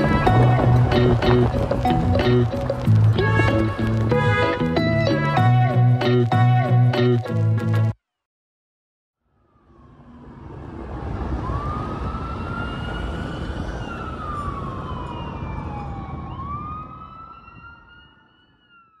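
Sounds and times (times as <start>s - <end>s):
emergency siren wailing: 0.0s - 5.5s, 9.2s - 19.0s
traffic rumble: 0.0s - 5.5s, 9.4s - 18.2s.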